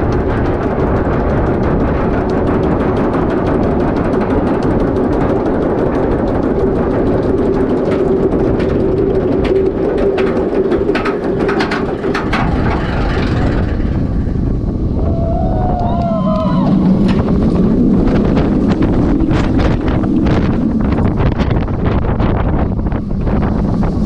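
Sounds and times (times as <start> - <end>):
sharp clattering: 0.0 - 15.0
ride rumble: 0.0 - 24.0
wind rushing: 0.0 - 24.0.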